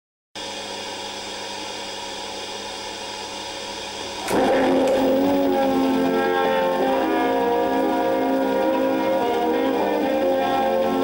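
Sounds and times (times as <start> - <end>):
film soundtrack hiss and hum: 0.4 - 11.0
music with held notes: 4.2 - 11.0.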